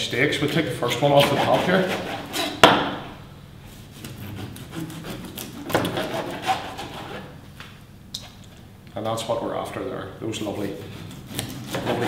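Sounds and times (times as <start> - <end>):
knife sawing through fish bone: 1.1 - 2.6, 3.9 - 7.3, 10.8 - 12.0
knife scraping on cutting board: 10.6 - 12.0.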